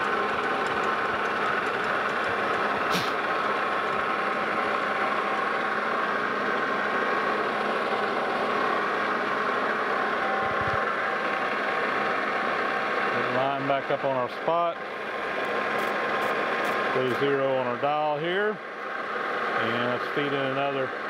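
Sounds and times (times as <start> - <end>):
metal lathe humming: 0.0 - 14.0.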